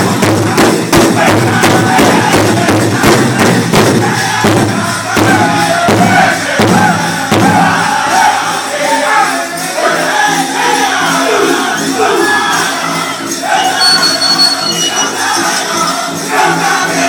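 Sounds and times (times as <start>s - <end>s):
large drum beating fast: 0.0s - 8.4s
men singing high-pitched: 0.0s - 17.0s.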